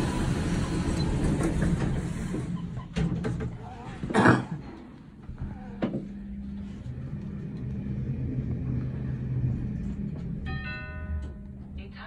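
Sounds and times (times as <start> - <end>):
lift drive low hum: 5.3 - 10.5.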